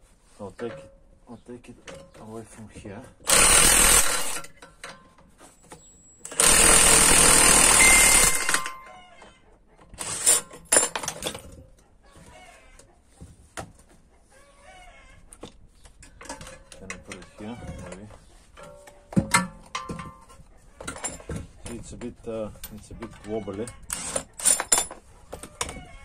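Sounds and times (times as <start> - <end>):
metal clanks: 16.0 - 23.3.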